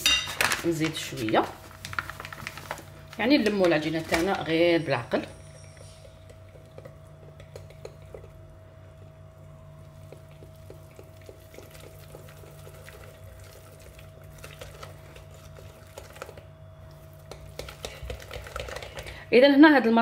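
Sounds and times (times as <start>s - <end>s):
whisk beating batter in glass bowl: 17.1s - 19.2s.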